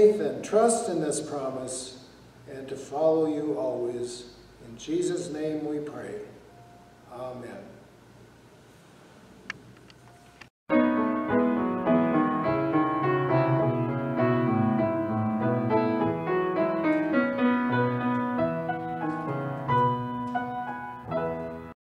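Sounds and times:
piano music: 10.7 - 21.8.

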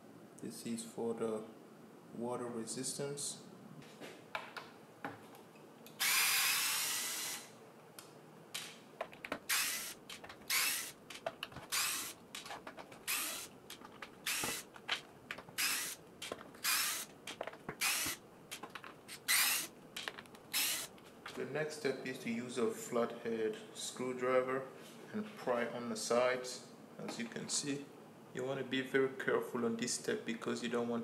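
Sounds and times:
electric screwdriver whirring: 6.0 - 7.5, 9.4 - 11.0, 11.6 - 12.2, 13.0 - 13.5, 14.2 - 14.7, 15.6 - 16.0, 16.6 - 17.1, 17.8 - 18.2, 19.1 - 19.7, 20.5 - 20.9.

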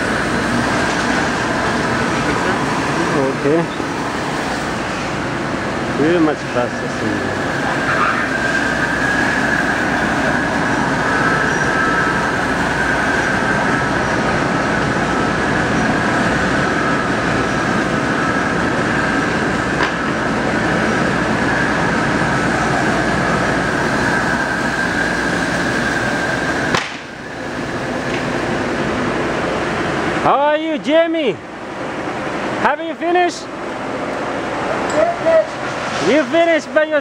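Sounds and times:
constant high whine: 0.0 - 37.0
machine running: 0.0 - 37.0.

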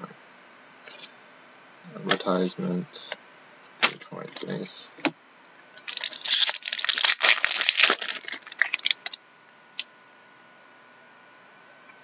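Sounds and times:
foil wrapper crinkling and tearing: 5.8 - 9.2.

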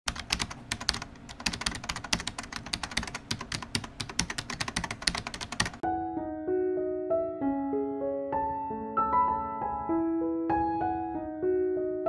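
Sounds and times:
keyboard typing clicks: 0.1 - 5.8
piano melody: 0.1 - 12.0.

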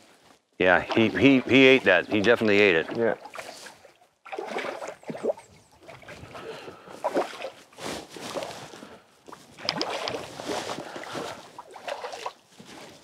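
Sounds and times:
fish thrashing in river water: 0.8 - 8.5, 9.3 - 13.0.

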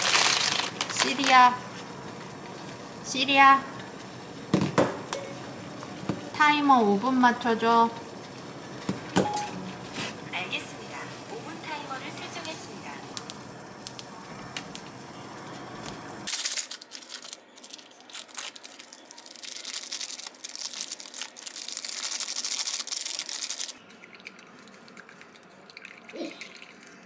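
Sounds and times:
plastic crinkling and tearing: 0.0 - 1.6, 16.3 - 23.8.

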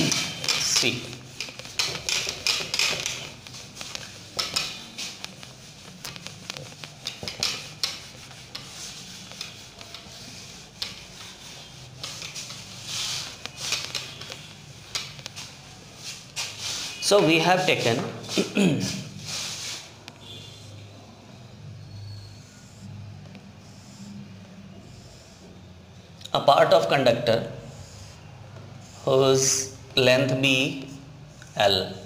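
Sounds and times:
chalkboard being wiped: 0.0 - 21.1.

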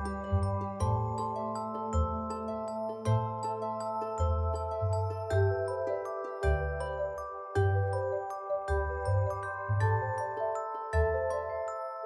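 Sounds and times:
low bass line: 0.0 - 1.3
bell-like struck notes: 0.0 - 12.0.

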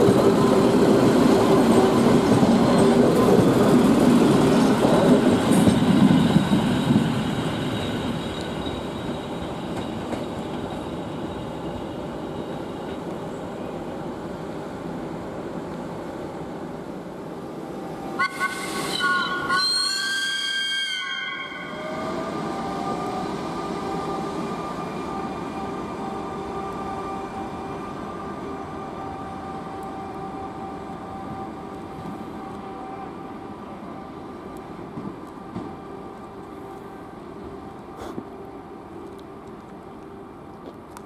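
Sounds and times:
moving train whine: 0.0 - 41.0
trains running low drone: 0.0 - 41.0
two-tone train horn: 18.1 - 34.2.

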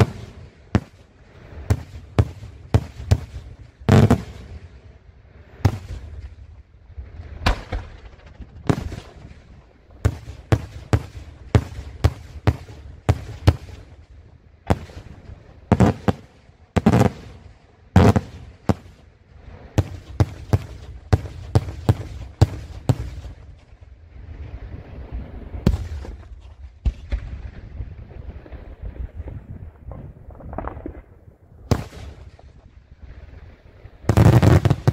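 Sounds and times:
fireworks bangs: 0.0 - 4.6, 5.6 - 6.3, 7.4 - 14.0, 14.6 - 19.1, 19.7 - 23.6, 31.7 - 32.6, 34.1 - 34.9.

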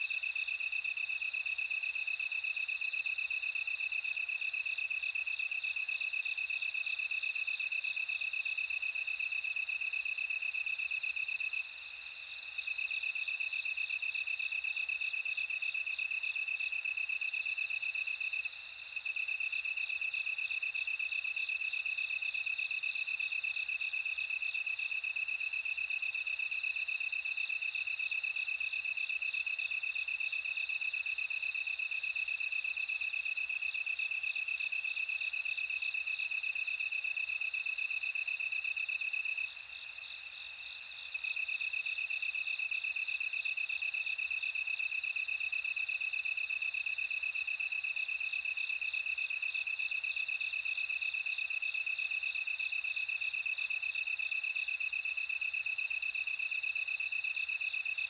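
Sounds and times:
high-pitched cricket chirps: 0.0 - 58.0
crickets pulsing trill: 4.2 - 13.0, 22.4 - 58.0.

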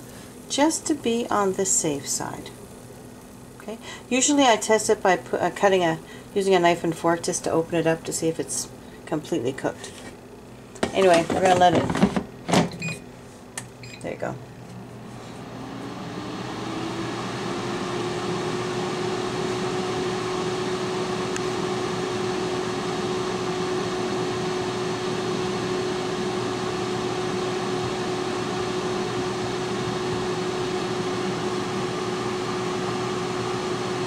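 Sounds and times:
air fryer fan running: 0.0 - 34.0.

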